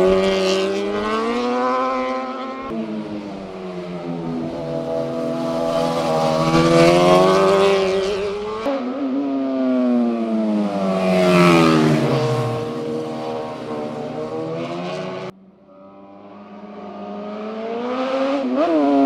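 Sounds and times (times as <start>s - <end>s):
motorcycles passing at speed: 0.0s - 19.0s.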